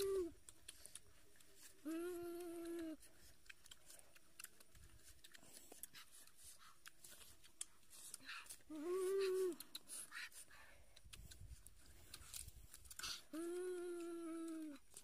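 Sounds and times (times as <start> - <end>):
boy humming: 0.0 - 0.4, 1.8 - 3.0, 8.7 - 9.7, 13.3 - 14.9
mouth sounds of eating: 0.0 - 15.0.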